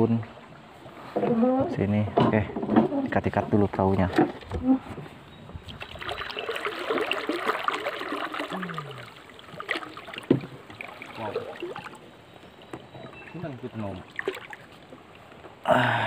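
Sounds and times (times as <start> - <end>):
water lapping at hull: 2.8 - 15.6.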